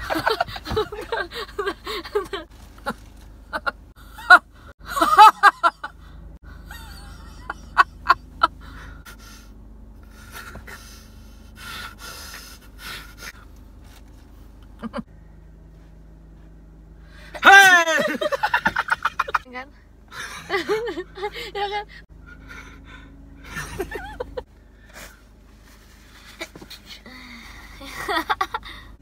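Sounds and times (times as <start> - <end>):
people laughing hard: 0.0 - 2.4, 3.6 - 6.0, 17.5 - 19.4, 20.2 - 21.6, 23.4 - 24.4.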